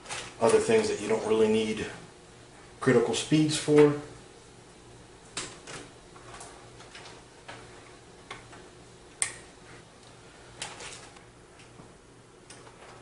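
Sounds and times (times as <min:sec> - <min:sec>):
cables rustling: 0:09.6 - 0:11.8.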